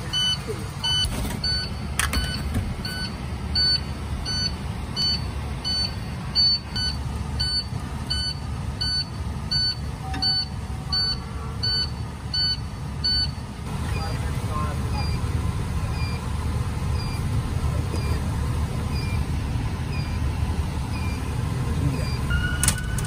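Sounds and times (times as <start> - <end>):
electronic warning beep: 0.0 - 14.2, 14.9 - 15.3, 15.9 - 16.3, 16.9 - 17.3, 17.9 - 18.3, 18.9 - 19.3, 19.9 - 20.3, 20.9 - 21.3, 21.9 - 23.0
engine running with low rumble: 0.0 - 23.0.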